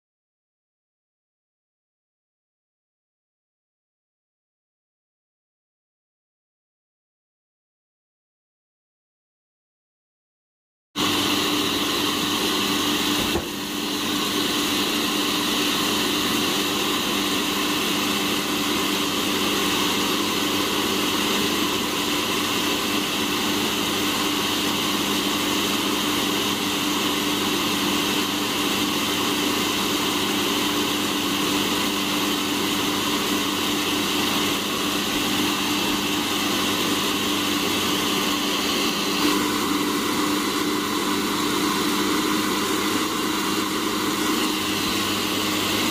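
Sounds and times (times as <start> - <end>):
coffee roaster fan whirring: 11.0 - 20.4.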